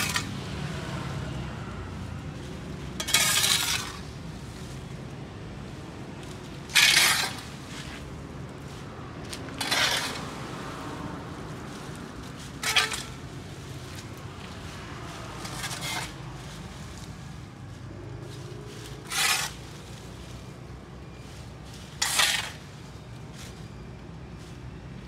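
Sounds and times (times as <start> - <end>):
metal tool scraping pavement: 0.0 - 0.4, 2.8 - 4.5, 6.6 - 8.2, 9.2 - 10.4, 12.4 - 17.2, 18.3 - 23.0.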